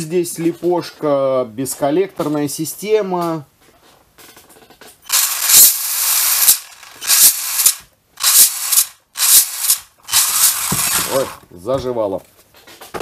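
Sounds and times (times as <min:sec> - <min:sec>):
toy car motor whirring and gear rattle: 0:05.1 - 0:11.4.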